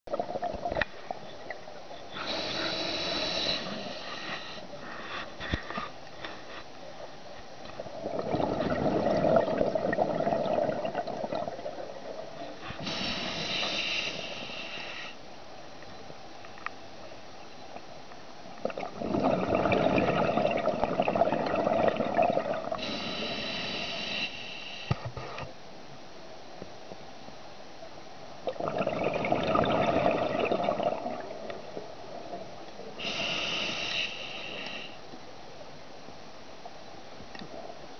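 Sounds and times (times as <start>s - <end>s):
hissing regulator inhales: 2.2s - 5.7s, 12.6s - 15.2s, 22.8s - 25.5s, 33.0s - 35.0s
exhaled bubbles rumbling: 7.7s - 12.9s, 18.6s - 22.9s, 28.4s - 32.9s.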